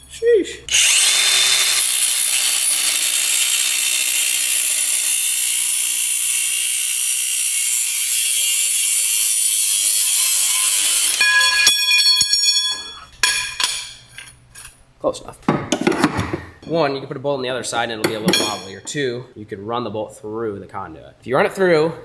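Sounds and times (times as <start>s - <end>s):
grinder high whine: 0.7s - 11.4s
angle grinder cutting steel: 0.7s - 11.6s.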